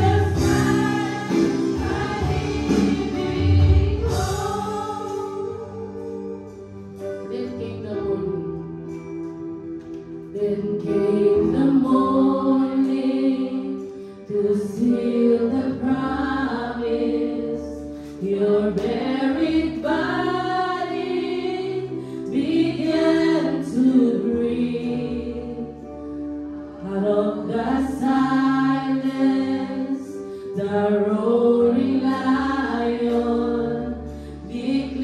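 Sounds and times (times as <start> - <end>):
women singing: 0.0 - 6.5, 10.4 - 25.8, 26.8 - 35.0
guitar: 0.0 - 16.0
keyboard: 0.0 - 35.0.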